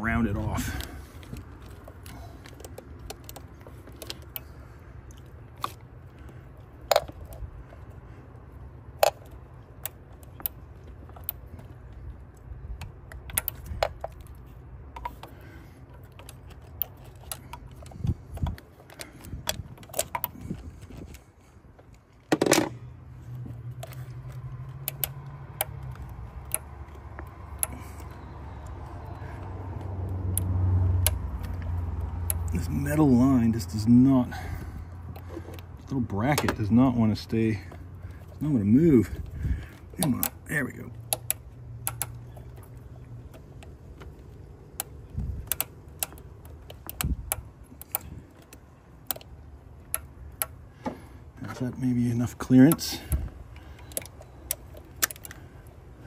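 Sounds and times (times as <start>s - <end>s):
steady low hum: 0.0s - 56.0s.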